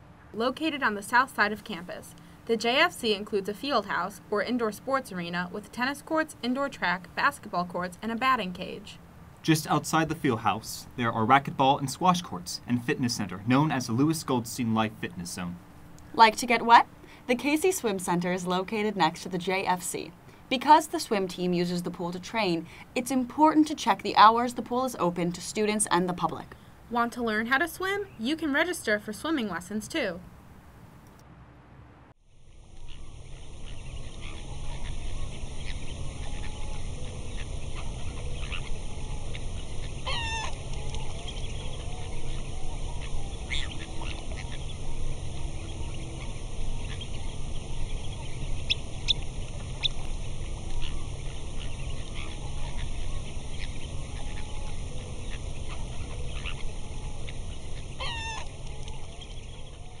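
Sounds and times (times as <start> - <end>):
water birds calling: 0.0 - 31.2, 32.4 - 60.0
steady low rumble: 28.5 - 60.0.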